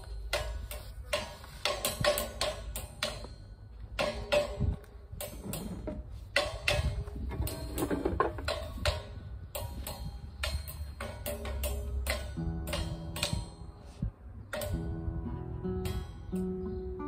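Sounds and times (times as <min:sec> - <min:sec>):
plucked guitar notes: 0:11.8 - 0:13.8, 0:14.5 - 0:17.0.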